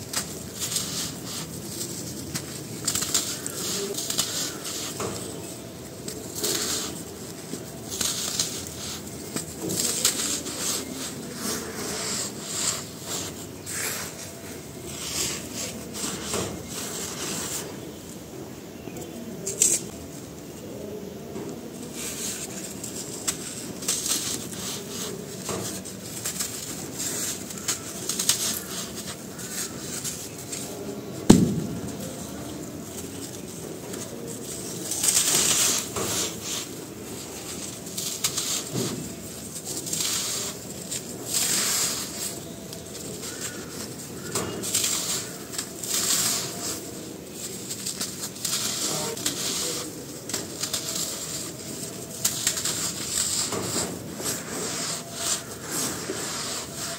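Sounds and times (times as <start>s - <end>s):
powder trickling: 0.0s - 18.2s, 21.7s - 56.9s
sharp crack: 23.3s - 36.7s.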